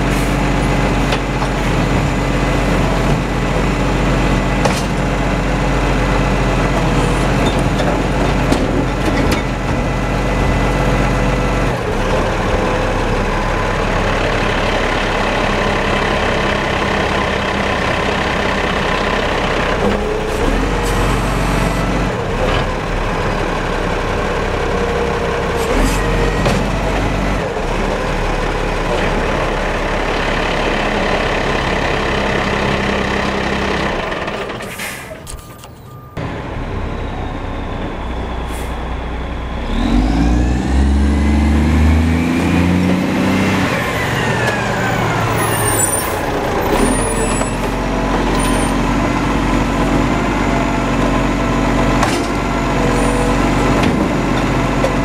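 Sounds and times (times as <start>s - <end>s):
diesel truck engine running: 0.0s - 55.0s
air brake hisses: 34.7s - 35.2s, 38.4s - 38.9s.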